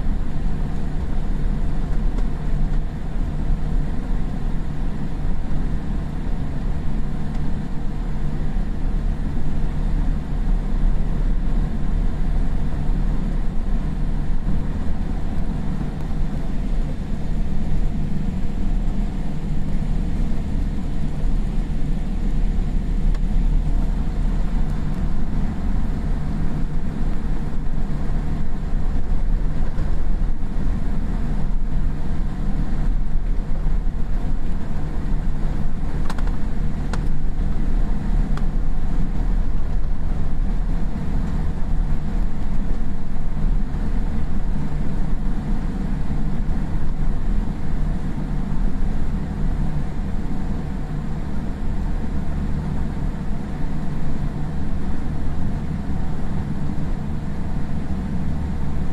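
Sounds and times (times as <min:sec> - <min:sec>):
airliner cabin rumble: 0:00.0 - 0:58.9.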